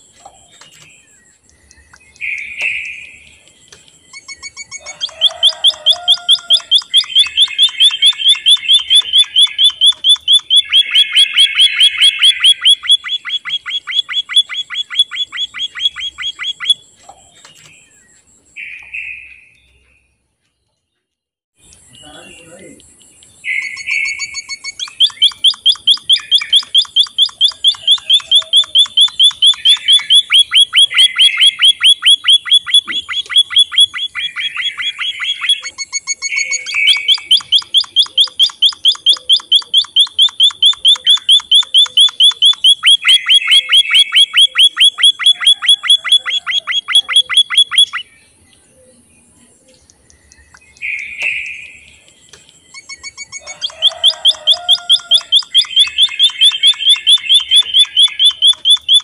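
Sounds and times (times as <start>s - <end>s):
bird chirping fast high notes: 0.0s - 17.0s, 23.4s - 48.1s, 52.6s - 59.0s
bird buzzy phrases: 21.9s - 23.0s.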